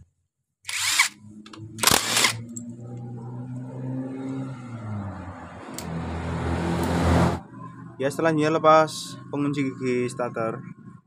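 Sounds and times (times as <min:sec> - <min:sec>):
power drill burst: 0:00.7 - 0:01.2, 0:01.8 - 0:02.4
vehicle engine humming: 0:01.0 - 0:11.0.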